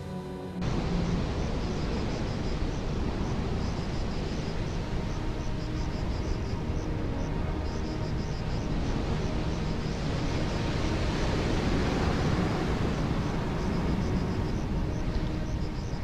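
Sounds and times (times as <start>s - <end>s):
wind buffeting microphone: 0.6s - 16.0s.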